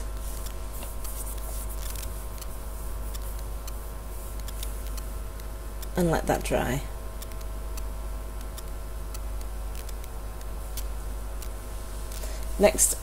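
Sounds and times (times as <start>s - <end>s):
faint steady whine: 0.0s - 13.0s
low electrical hum: 0.0s - 13.0s.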